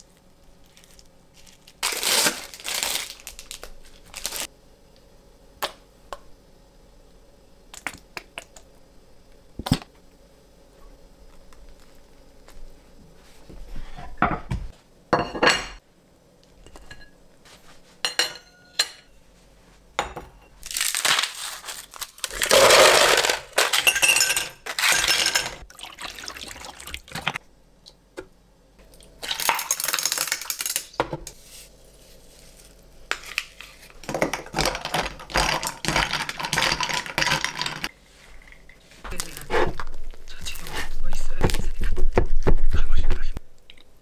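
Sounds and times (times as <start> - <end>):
ice cubes rattling in bin: 20.7 - 27.4, 34.0 - 37.9.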